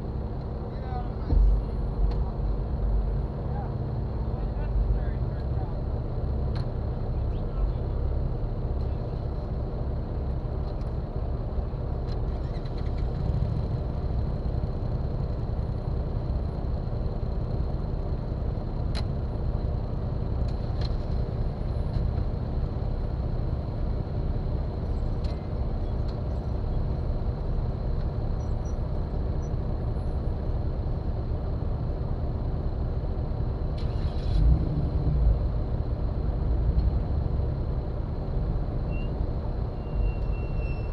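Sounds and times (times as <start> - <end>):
faint engine ticks: 1.2 - 2.4, 6.5 - 7.8, 24.9 - 26.4.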